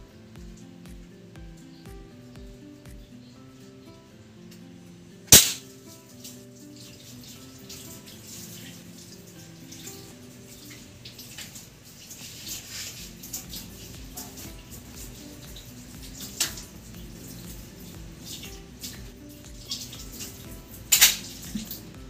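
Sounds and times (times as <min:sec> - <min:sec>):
background music: 0:00.0 - 0:22.0
crossbow shot crack: 0:05.3 - 0:05.6.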